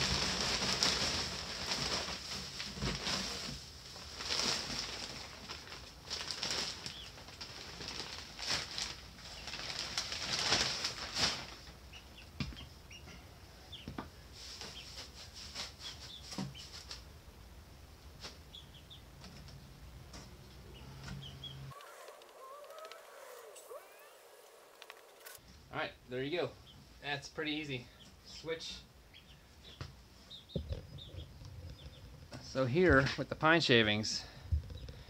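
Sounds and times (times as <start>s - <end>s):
wood shavings rustling: 0.0s - 11.8s, 21.7s - 25.4s
baby chicks peeping: 6.4s - 7.8s, 11.6s - 17.1s, 18.1s - 25.4s, 26.2s - 32.4s.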